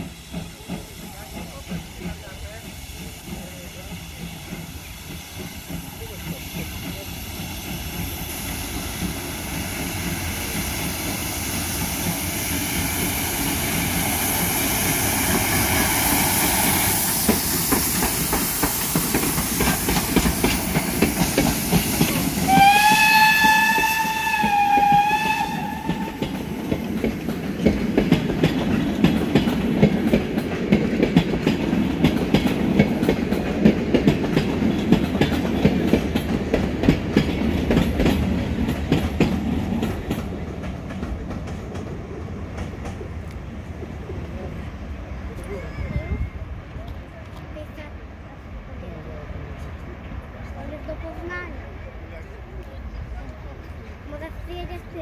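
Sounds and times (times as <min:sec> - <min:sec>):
train wheels clicking over rail joints: 0:00.0 - 0:43.5
steam locomotive rushing past: 0:00.0 - 0:55.0
steam whistle blast: 0:22.4 - 0:26.2.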